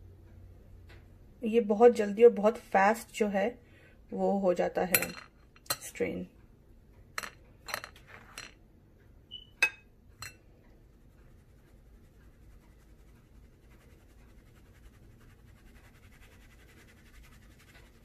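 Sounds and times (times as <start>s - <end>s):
spoon clinking against glass bowl: 4.9s - 5.9s, 9.3s - 10.5s
flour sifting through mesh: 10.7s - 18.0s.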